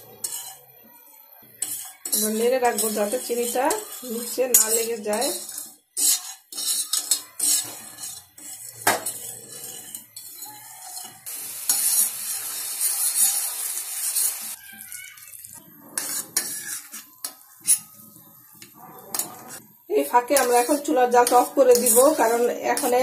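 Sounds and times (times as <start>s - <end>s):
metal spoon stirring in a saucepan: 0.0s - 23.0s
syrup boiling hiss: 1.6s - 18.7s.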